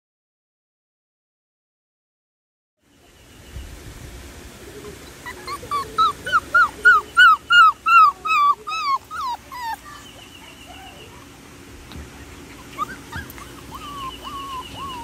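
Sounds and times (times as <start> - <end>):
puppy whining: 4.8 - 11.4, 12.4 - 15.0.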